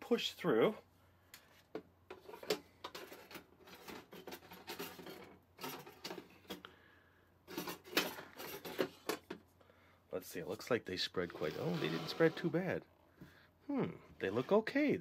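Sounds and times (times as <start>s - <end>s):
baking pan scraping and clicking: 11.3s - 12.6s.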